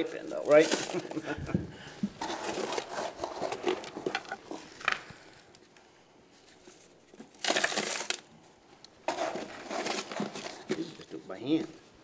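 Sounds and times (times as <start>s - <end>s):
hand scooping stony soil: 0.0s - 1.2s, 2.2s - 4.7s, 9.0s - 11.6s
soil and stones pouring: 0.0s - 1.2s.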